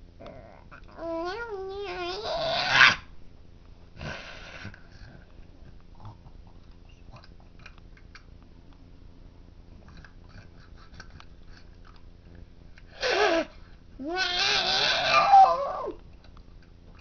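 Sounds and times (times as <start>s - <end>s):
drawn-out vocal cries: 13.0s - 16.0s.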